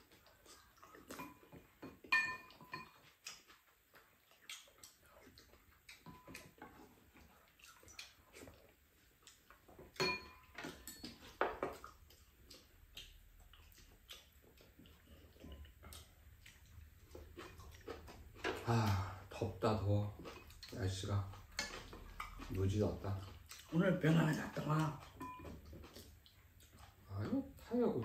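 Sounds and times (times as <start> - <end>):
chopsticks tapping ceramic bowls: 1.1 - 3.1, 9.9 - 11.8, 21.4 - 23.0.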